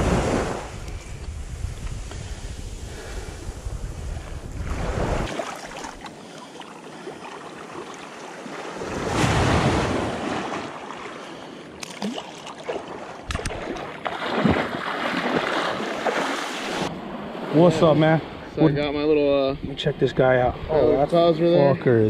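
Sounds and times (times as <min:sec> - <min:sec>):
wind on the microphone: 0:00.0 - 0:05.3
small waves washing over sand: 0:04.0 - 0:18.4
water splashing: 0:04.7 - 0:16.9.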